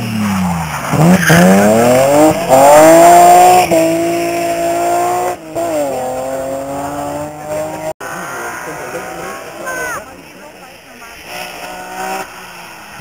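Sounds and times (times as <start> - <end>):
rally car engine at high revs: 0.0 - 13.0.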